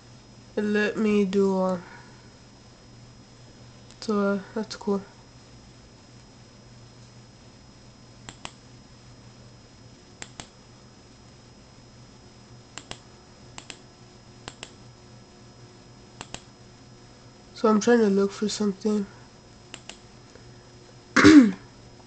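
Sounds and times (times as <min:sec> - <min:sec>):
low steady hum: 0:00.0 - 0:22.0
computer mouse clicks: 0:08.3 - 0:08.6, 0:10.2 - 0:10.5, 0:12.8 - 0:13.0, 0:13.6 - 0:13.8, 0:14.4 - 0:14.8, 0:16.2 - 0:16.5, 0:19.7 - 0:20.0.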